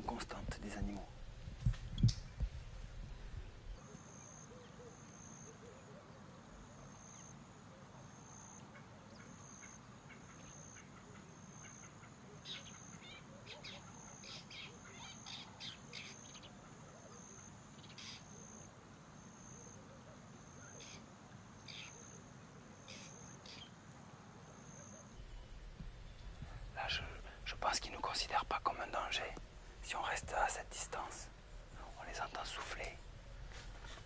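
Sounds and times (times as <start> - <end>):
short bird calls: 8.7 - 18.5, 22.8 - 23.7
high insect trill: 24.6 - 34.0.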